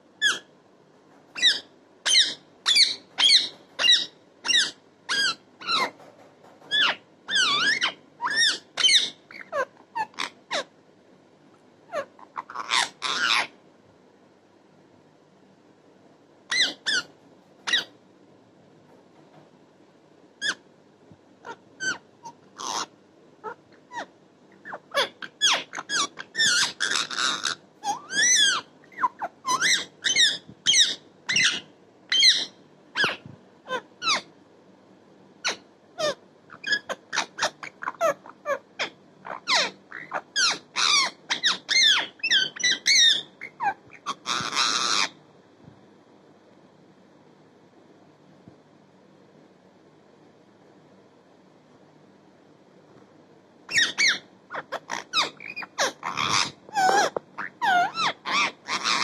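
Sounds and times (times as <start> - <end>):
parakeet squeaky chirps: 0.2 - 0.5, 1.2 - 10.7, 11.9 - 13.5, 16.5 - 17.9, 20.4 - 20.6, 21.4 - 34.3, 35.4 - 45.2, 53.7 - 59.0.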